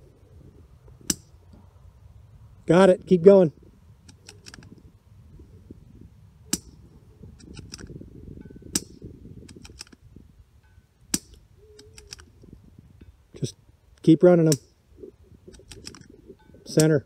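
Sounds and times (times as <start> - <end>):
rifle bolt clicks: 4.1 - 4.7, 7.4 - 7.9, 8.7 - 10.0, 11.1 - 12.3, 15.5 - 16.1.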